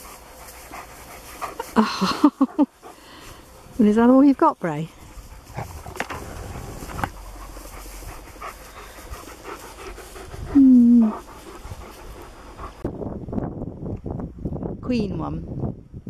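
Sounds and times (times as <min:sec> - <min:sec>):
dog panting hard: 0:00.0 - 0:03.9, 0:04.9 - 0:13.0
rustles and clicks: 0:03.3 - 0:10.5.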